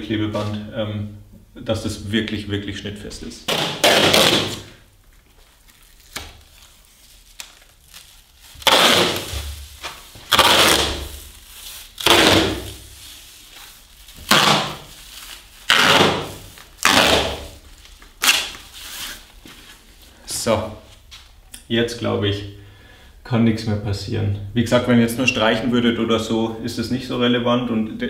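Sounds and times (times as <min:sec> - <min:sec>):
tape ripping off roll: 0:03.5 - 0:19.3.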